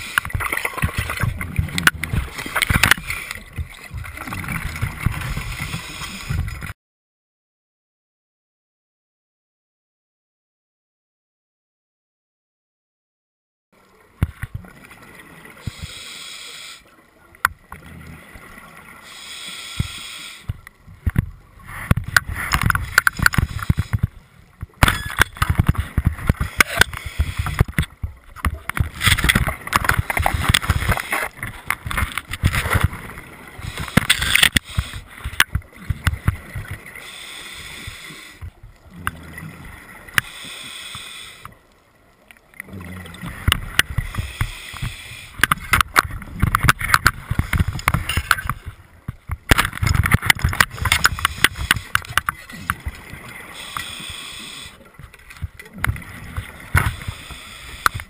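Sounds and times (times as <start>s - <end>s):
underwater bubbles gurgling: 0.0s - 6.7s, 17.0s - 58.0s
hiss: 15.7s - 16.8s, 19.0s - 20.5s, 37.0s - 38.4s, 40.2s - 41.4s, 44.2s - 45.4s, 53.5s - 54.8s, 56.9s - 58.0s.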